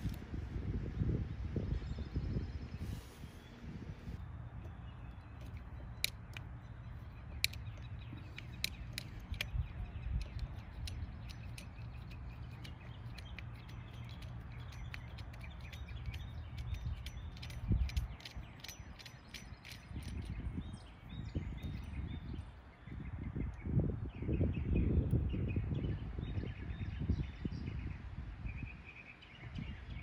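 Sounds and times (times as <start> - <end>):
handling noise: 4.5 - 20.6
pliers clicking and tapping metal: 5.4 - 20.4.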